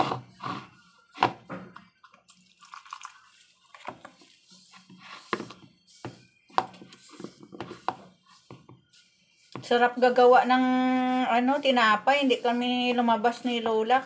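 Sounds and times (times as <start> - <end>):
wet mixing and dripping: 2.0 - 9.7.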